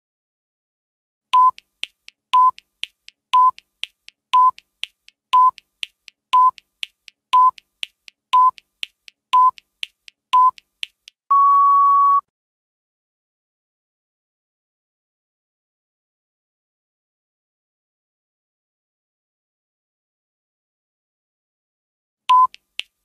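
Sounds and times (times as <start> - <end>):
faint timer ticks: 1.3 - 11.2, 22.3 - 23.0
short electronic beeps: 1.4 - 1.6, 2.4 - 2.6, 3.4 - 3.6, 4.4 - 4.6, 5.4 - 5.6, 6.4 - 6.6, 7.4 - 7.6, 8.4 - 8.6, 9.4 - 9.6, 10.4 - 10.6, 11.3 - 12.3, 22.3 - 22.6
long higher end beep: 11.3 - 12.3.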